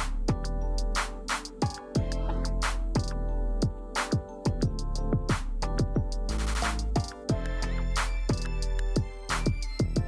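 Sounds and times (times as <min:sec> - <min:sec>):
snare or clap hits: 0:01.0 - 0:01.8, 0:02.6 - 0:03.1, 0:04.0 - 0:04.2, 0:05.3 - 0:05.6, 0:06.4 - 0:07.2, 0:09.3 - 0:09.6.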